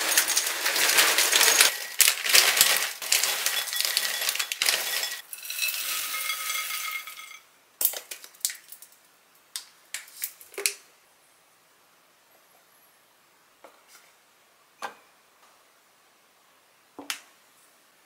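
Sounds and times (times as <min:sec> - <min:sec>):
beans pouring into glass bowl: 0:00.0 - 0:07.4.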